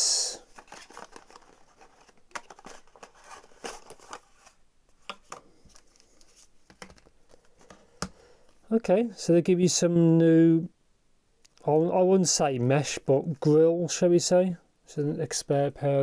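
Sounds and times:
packaging rustling and clicking: 0.5 - 8.2.

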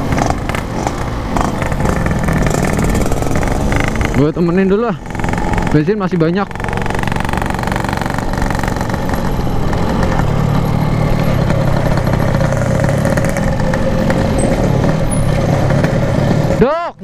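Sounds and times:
two-stroke motorcycle engine: 0.0 - 17.0.

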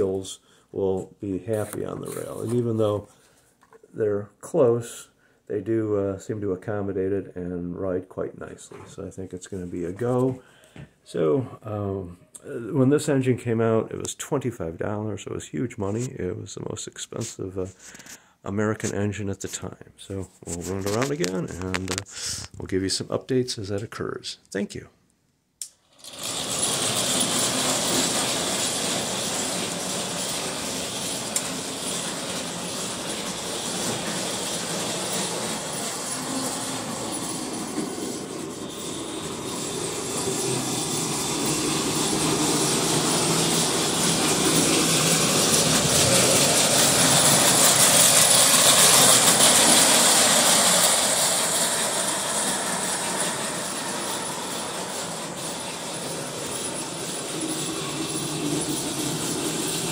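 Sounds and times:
metal wheels running on rails: 1.5 - 3.0, 25.9 - 59.9
toy train motor whirring: 25.6 - 59.9.

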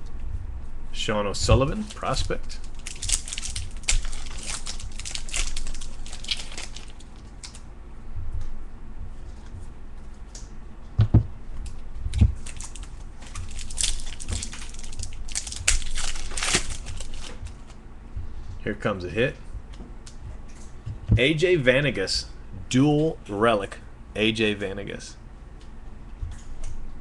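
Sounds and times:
cards rustling and crinkling: 1.5 - 7.6, 12.1 - 17.8
dull thumps: 10.9 - 11.4, 20.2 - 21.3.

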